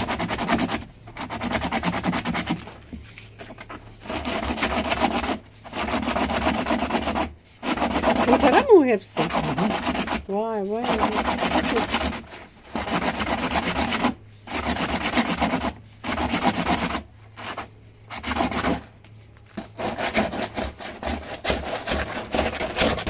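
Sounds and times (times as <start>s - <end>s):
wood rasp strokes on board: 0.0s - 23.0s.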